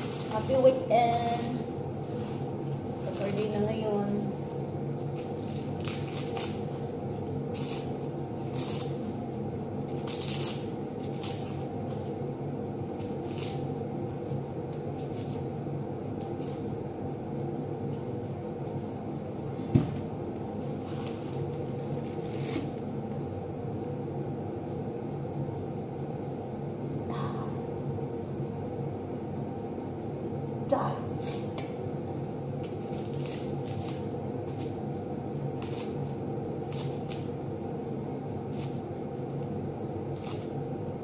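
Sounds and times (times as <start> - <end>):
onion skins crackling and rustling: 0.0 - 16.8, 17.9 - 22.9, 32.6 - 37.4, 38.2 - 40.8
steady low hum: 0.0 - 41.0.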